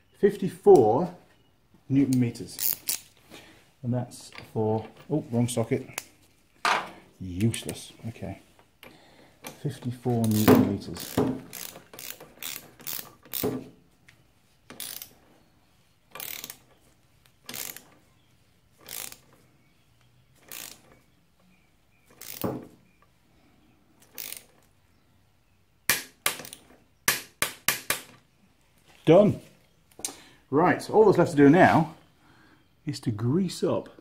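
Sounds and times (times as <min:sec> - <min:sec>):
socket ratchet wrench ratcheting: 0:02.6 - 0:03.1, 0:10.2 - 0:13.6, 0:14.7 - 0:15.2, 0:16.1 - 0:16.8, 0:17.5 - 0:18.0, 0:18.8 - 0:19.3, 0:20.4 - 0:21.0, 0:22.2 - 0:22.5, 0:24.0 - 0:24.6.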